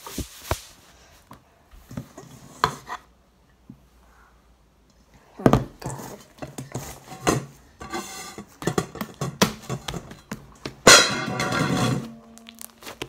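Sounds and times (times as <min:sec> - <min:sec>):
slime clicking and popping: 0:12.4 - 0:13.0.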